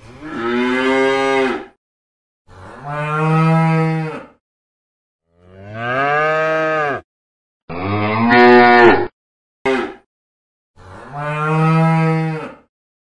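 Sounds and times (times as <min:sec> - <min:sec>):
cow mooing: 0:00.2 - 0:01.8, 0:05.4 - 0:07.0, 0:07.7 - 0:09.1, 0:10.8 - 0:12.6.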